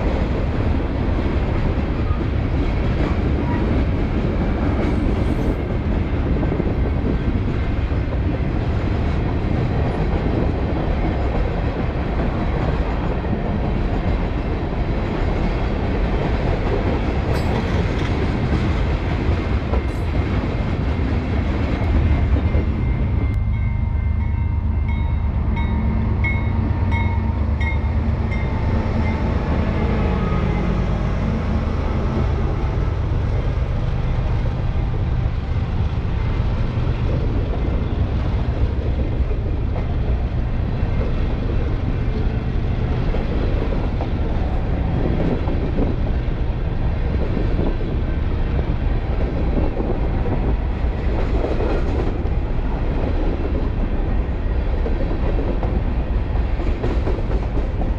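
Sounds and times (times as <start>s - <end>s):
freight train rumbling past: 0.0s - 57.9s
crossing bell dinging: 22.5s - 30.9s.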